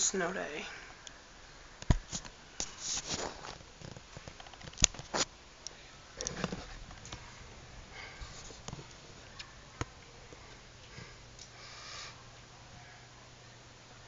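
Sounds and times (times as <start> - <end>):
camera handling rustle: 1.9 - 5.3.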